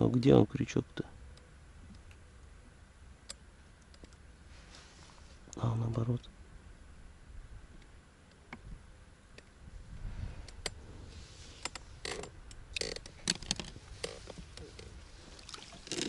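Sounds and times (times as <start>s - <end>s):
faint low rumble: 0.0s - 16.0s
fishing tackle clicking and rattling: 11.7s - 14.9s, 15.8s - 16.0s.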